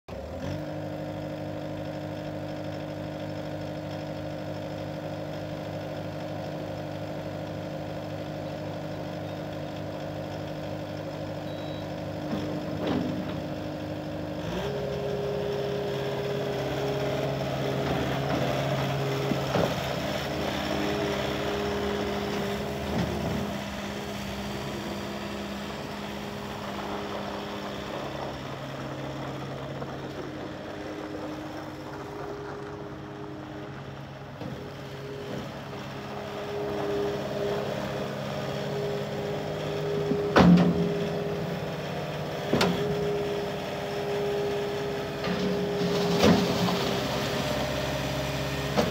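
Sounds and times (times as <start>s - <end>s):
diesel engine idling: 0.1s - 48.9s
engine knocks: 16.7s - 38.3s, 39.4s - 43.9s.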